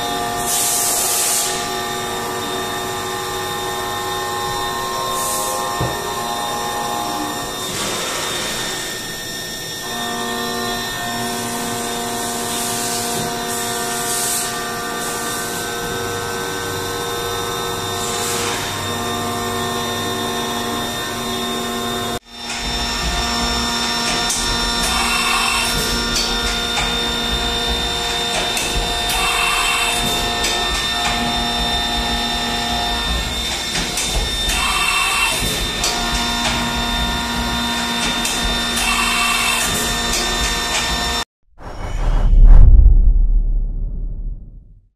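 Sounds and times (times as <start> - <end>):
machining center whining: 18.7 - 40.5.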